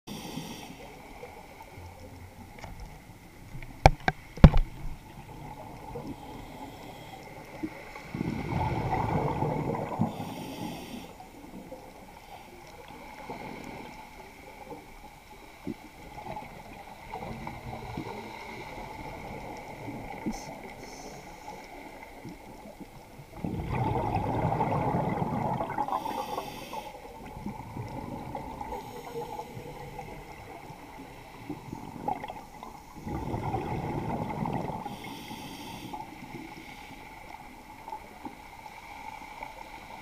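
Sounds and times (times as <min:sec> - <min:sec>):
exhaled bubbles rumbling underwater: 0:00.1 - 0:40.0
low water hiss: 0:00.1 - 0:40.0.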